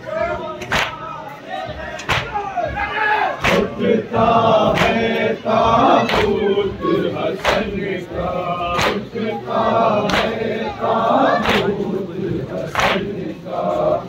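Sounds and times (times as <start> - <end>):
men chanting a lament: 0.0 - 14.0
hands slapping chests: 0.6 - 1.0, 2.0 - 2.4, 3.4 - 3.8, 4.7 - 5.2, 6.0 - 6.4, 7.2 - 8.0, 8.7 - 9.1, 10.0 - 10.4, 11.4 - 11.9, 12.6 - 13.2.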